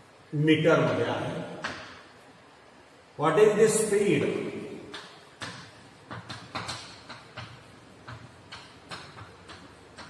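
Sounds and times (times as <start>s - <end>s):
chalk tapping on blackboard: 4.9s - 10.0s.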